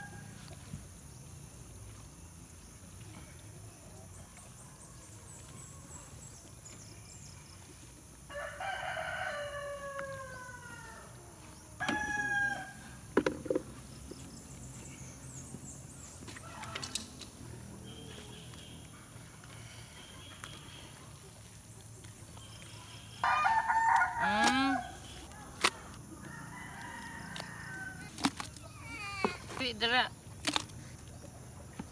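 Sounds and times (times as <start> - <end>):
rooster crowing: 8.3 - 11.2, 11.8 - 13.0, 23.2 - 25.0, 26.2 - 28.1.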